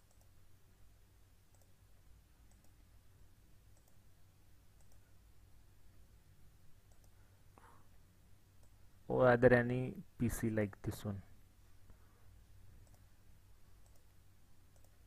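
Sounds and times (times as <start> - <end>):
computer mouse clicks: 0.0 - 0.4, 1.5 - 1.8, 2.4 - 2.8, 3.7 - 4.0, 4.8 - 5.1, 6.8 - 7.2, 8.6 - 8.8, 12.8 - 13.1, 13.8 - 15.0
low room hum: 0.0 - 15.0.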